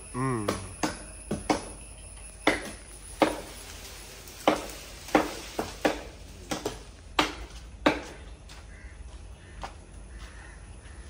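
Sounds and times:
blade chopping wood: 2.4s - 3.6s, 4.4s - 8.2s.

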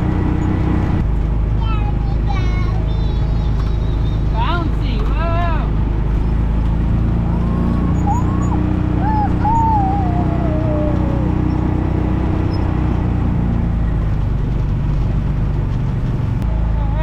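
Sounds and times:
utility vehicle engine running: 0.0s - 17.0s
short high calls: 7.3s - 12.7s.

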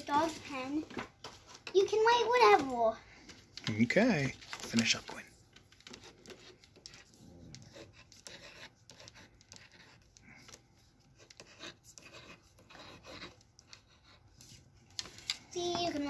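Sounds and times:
pen scratching on paper: 5.8s - 14.6s.

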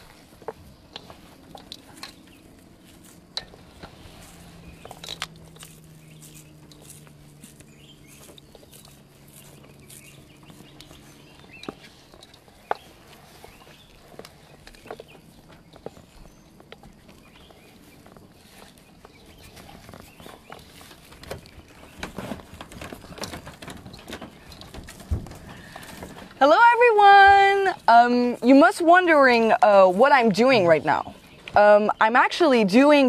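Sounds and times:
hands squeezing food mash: 0.0s - 26.1s.

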